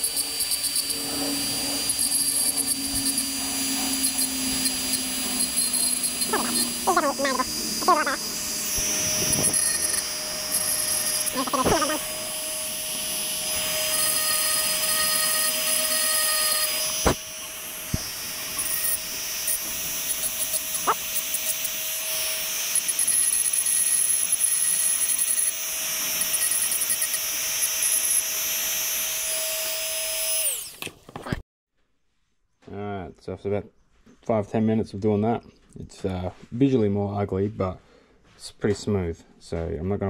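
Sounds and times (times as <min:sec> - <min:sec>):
grinding bit clicking: 0:00.0 - 0:12.2
rotary tool grinding whine: 0:00.0 - 0:31.4.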